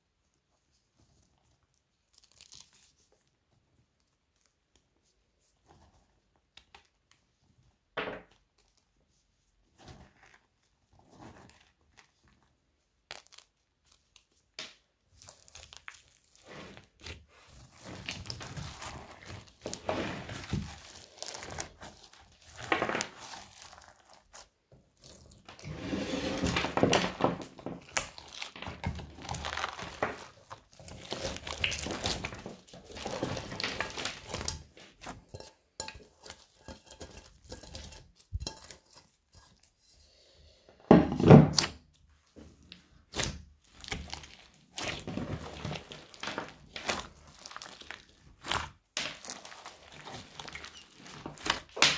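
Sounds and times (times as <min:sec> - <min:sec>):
crunchy slime crackling: 0:01.5 - 0:03.3, 0:09.8 - 0:25.7, 0:26.4 - 0:39.7, 0:43.0 - 0:51.9.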